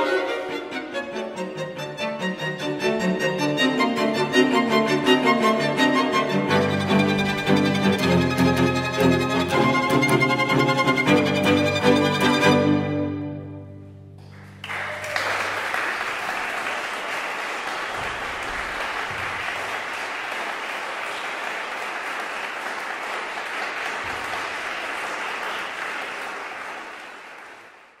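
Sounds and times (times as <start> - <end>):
string quartet chord: 0.0 - 14.1
audience applause: 14.2 - 28.0.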